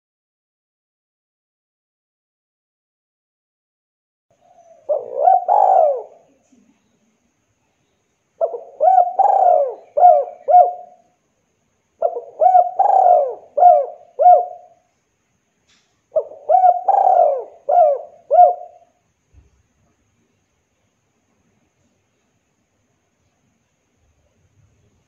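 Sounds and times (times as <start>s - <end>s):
dove cooing: 4.4s - 6.6s, 8.4s - 11.1s, 12.0s - 14.8s, 16.1s - 19.0s.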